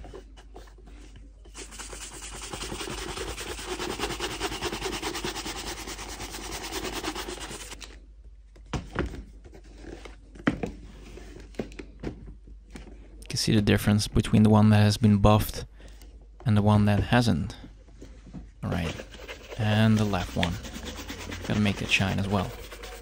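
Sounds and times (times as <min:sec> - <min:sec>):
shoe brush buffing leather boot: 0:01.6 - 0:07.8, 0:19.0 - 0:23.0.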